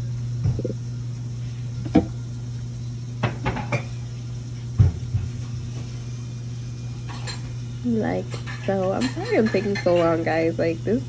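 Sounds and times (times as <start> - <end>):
utensils clinking against plate: 7.0 - 10.5.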